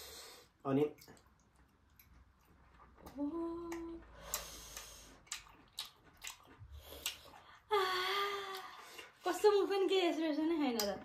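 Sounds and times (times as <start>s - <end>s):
mouth clicks and smacks eating: 0.8s - 7.7s
person humming mmm: 3.1s - 4.5s.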